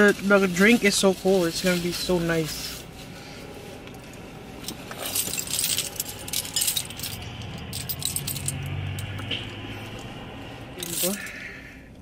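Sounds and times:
low hum: 2.8s - 12.0s.

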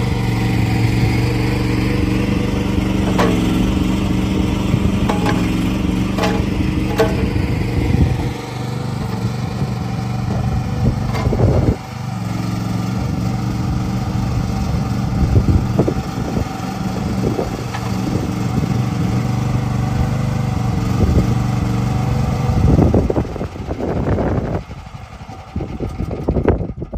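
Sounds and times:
small excavator engine running: 0.0s - 26.9s
short machine knocks: 3.0s - 9.4s, 10.2s - 11.8s.

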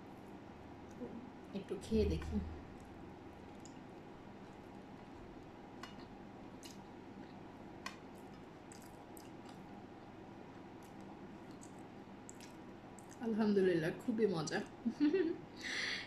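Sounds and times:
faint room hum: 0.0s - 16.0s.

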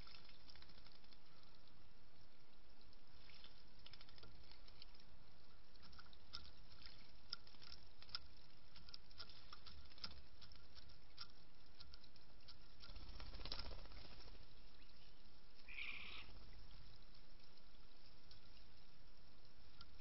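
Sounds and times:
bird bill pecking seeds: 3.2s - 18.8s
faint hiss: 13.0s - 20.0s.

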